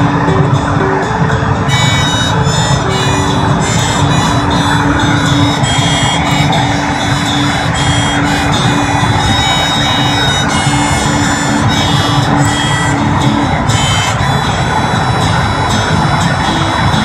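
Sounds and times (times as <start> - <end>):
car road and tyre noise: 0.0 - 17.0
held tones: 0.0 - 17.0.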